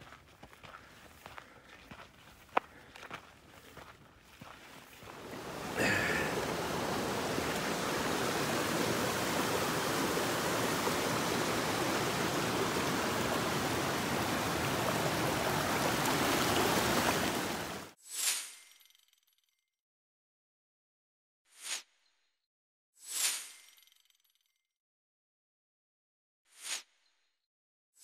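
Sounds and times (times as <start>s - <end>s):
creek water rushing: 5.0s - 18.0s.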